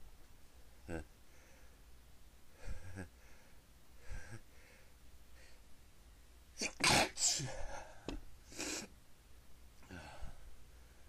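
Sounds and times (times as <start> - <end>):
person sneezing: 6.6 - 8.9.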